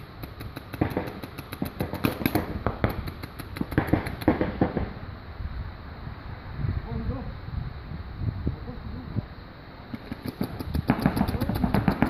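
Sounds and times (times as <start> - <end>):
paintball markers firing: 0.0 - 4.9, 9.9 - 12.0.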